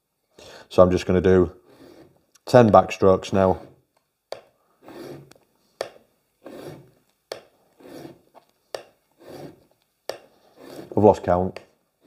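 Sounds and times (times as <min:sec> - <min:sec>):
blade rubbing on sharpening stone: 0:01.6 - 0:02.2, 0:04.8 - 0:07.0, 0:07.7 - 0:11.1.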